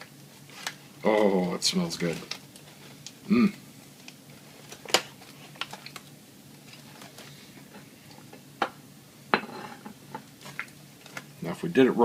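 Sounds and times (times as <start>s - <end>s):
aluminium foil crinkling: 0.0s - 3.2s, 3.8s - 8.3s, 10.2s - 11.7s.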